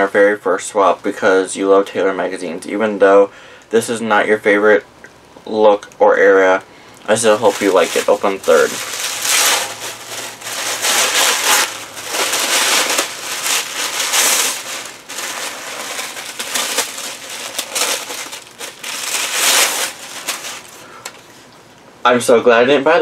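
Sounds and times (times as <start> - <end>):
gift wrapping crinkling: 7.0 - 21.5.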